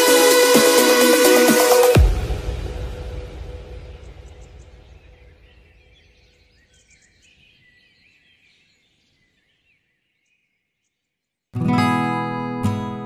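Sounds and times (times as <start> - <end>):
background music: 0.0 - 5.0, 11.6 - 13.0
birds chirping faintly: 3.8 - 11.6.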